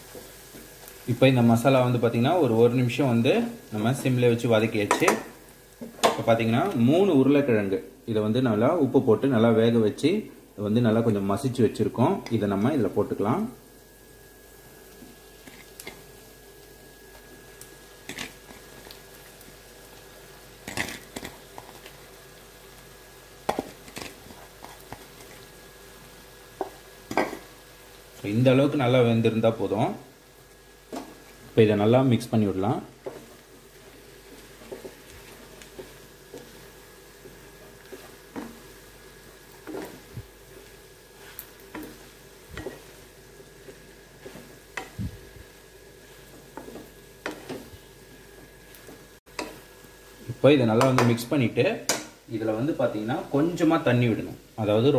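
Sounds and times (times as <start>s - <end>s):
faint frying sizzle: 0.0s - 54.9s
spatula scraping pan: 39.6s - 40.1s, 41.1s - 45.0s, 46.0s - 47.8s.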